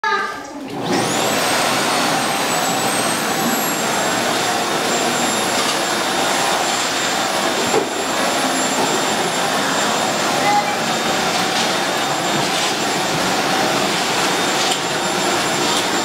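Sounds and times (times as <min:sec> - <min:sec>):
vacuum cleaner running: 0:00.6 - 0:16.0.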